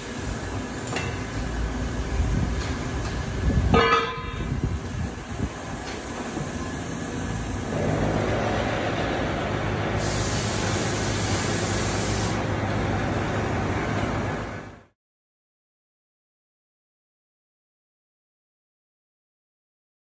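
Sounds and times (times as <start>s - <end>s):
machinery humming and rushing: 0.0s - 15.0s
higher hiss: 9.9s - 12.5s.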